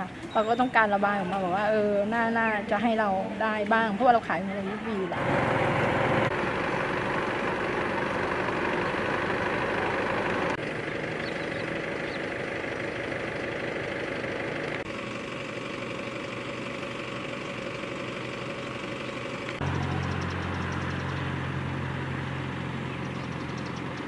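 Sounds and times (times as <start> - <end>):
low engine hum: 0.0 - 24.0
roadside traffic: 0.0 - 24.0.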